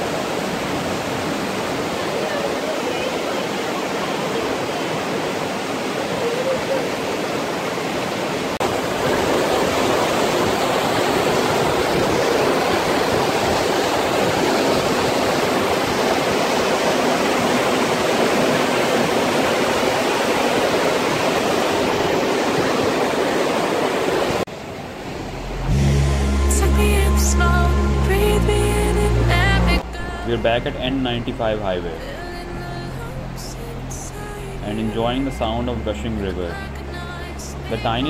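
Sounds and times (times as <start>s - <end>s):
river rushing over rapids: 0.0s - 25.6s.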